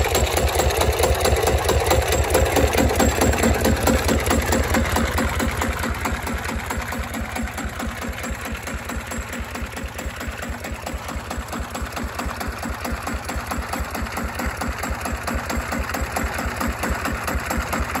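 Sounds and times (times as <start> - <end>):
diesel tractor engine idling: 0.0 - 18.0.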